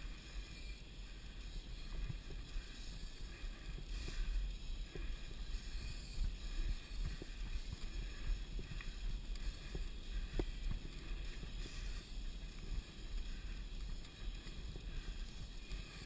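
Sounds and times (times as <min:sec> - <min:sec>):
wind rumble on microphone: 0:00.0 - 0:16.0.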